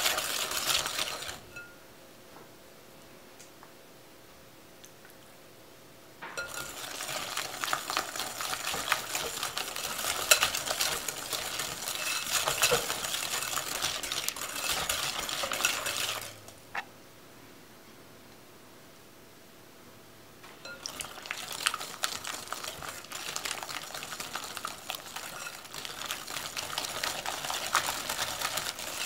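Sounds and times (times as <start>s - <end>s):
whisk clinking against glass bowl: 6.4s - 16.4s, 20.6s - 29.0s.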